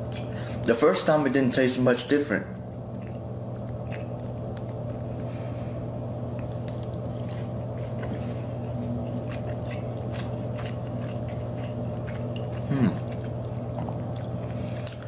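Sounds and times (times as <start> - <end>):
steady low hum: 0.0 - 15.0
person chewing wet mouth sounds: 3.0 - 4.8, 6.2 - 15.0.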